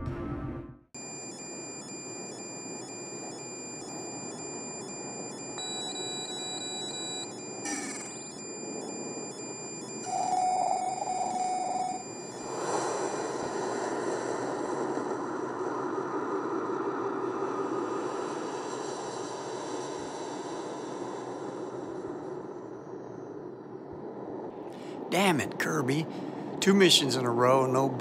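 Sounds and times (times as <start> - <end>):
electronic beeps: 1.0 - 12.5
spaceship droning hum: 1.0 - 25.0
high thin tones: 9.9 - 12.6.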